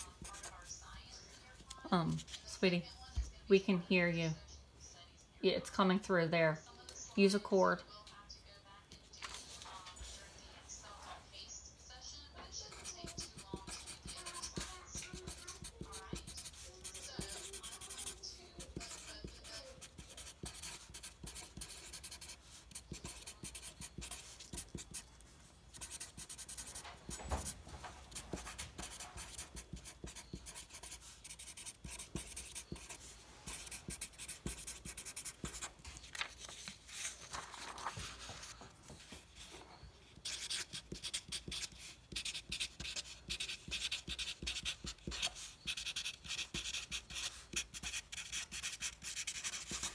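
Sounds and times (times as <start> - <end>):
marker scratching on paper: 0.0 - 0.9, 12.6 - 49.9.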